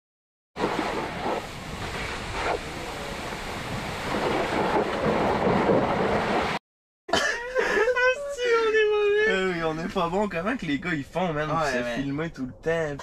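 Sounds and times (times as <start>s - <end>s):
wind on microphone: 0.6s - 6.6s.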